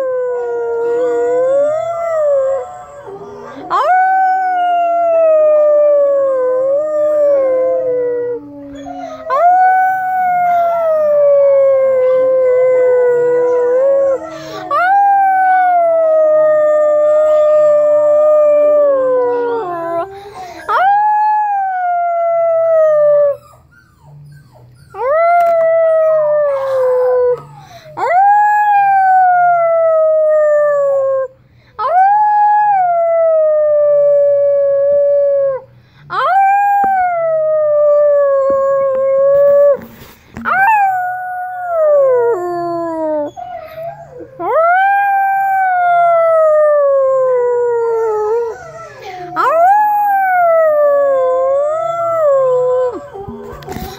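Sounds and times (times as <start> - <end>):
dog howling: 31.9 - 53.9.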